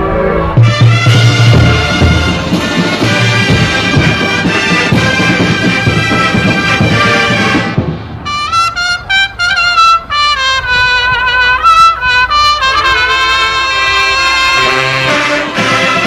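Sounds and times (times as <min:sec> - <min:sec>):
drums: 0:00.0 - 0:09.1, 0:14.6 - 0:16.0
high bugles playing melody: 0:00.0 - 0:16.0
horn line playing: 0:00.0 - 0:16.0.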